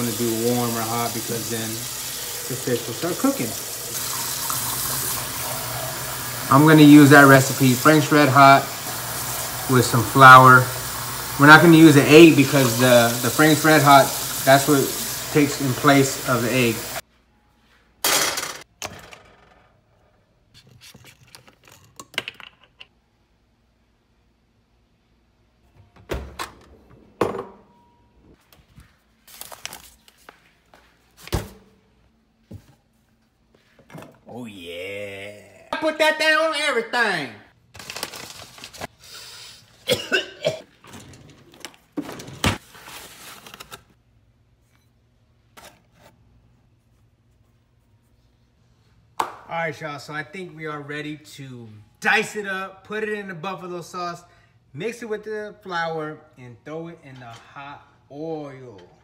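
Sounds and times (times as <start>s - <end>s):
flour bag rustling and crinkling: 28.8s - 30.6s, 37.7s - 38.9s.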